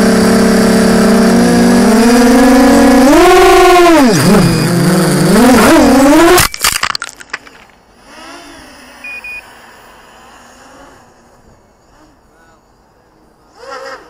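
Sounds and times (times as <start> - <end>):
quadcopter motors whining: 0.0 - 6.5, 7.4 - 14.0
drone clattering across gravel: 4.1 - 7.9
short beeps: 9.0 - 9.5.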